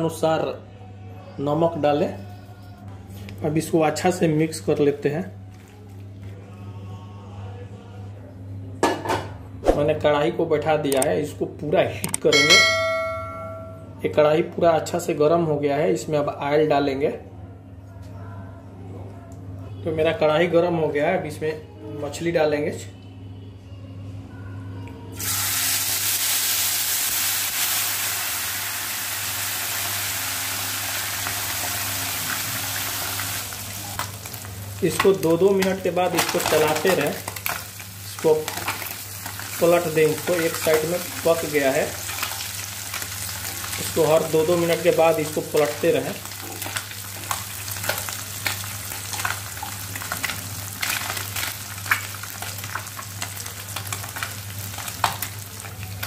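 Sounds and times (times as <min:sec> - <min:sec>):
fish sizzling in hot oil: 0:25.2 - 0:35.4, 0:36.2 - 0:56.0.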